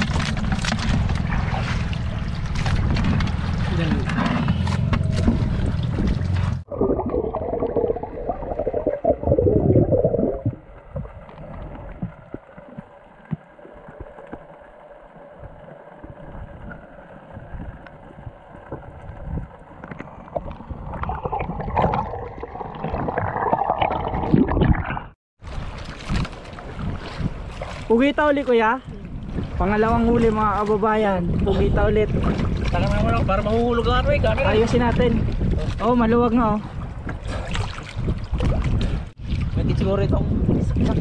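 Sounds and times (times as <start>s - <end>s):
underwater bubbling and gurgling: 0.0s - 27.8s.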